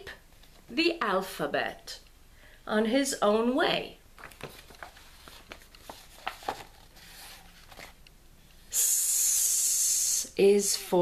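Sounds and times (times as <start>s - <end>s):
paper pages rustling: 4.2s - 8.1s
person hissing s sound: 8.7s - 10.4s.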